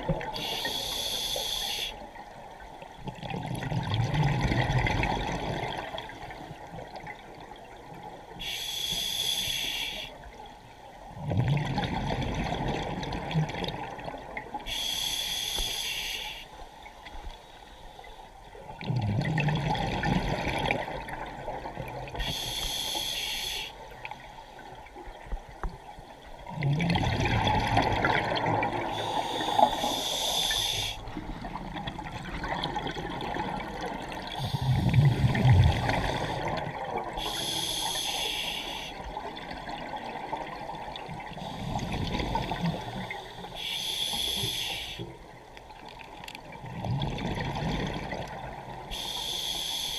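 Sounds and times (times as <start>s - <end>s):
regulator hissing inhale: 0.4s - 2.0s, 8.4s - 10.2s, 14.7s - 16.6s, 22.2s - 23.8s, 28.9s - 31.1s, 37.2s - 39.1s, 41.4s - 45.1s, 48.9s - 49.9s.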